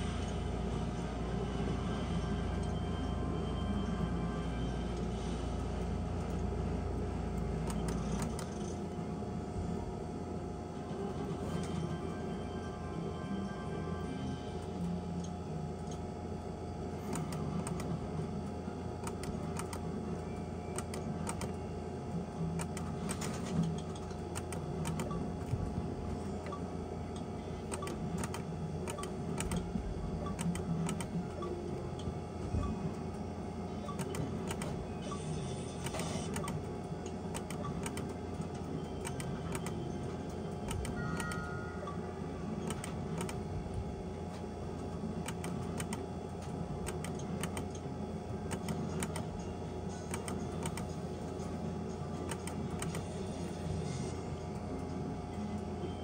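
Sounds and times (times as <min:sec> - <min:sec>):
electrical hum: 0:00.0 - 0:56.0
slot machine clicking and ticking: 0:05.8 - 0:09.2, 0:13.3 - 0:43.8, 0:44.7 - 0:53.6.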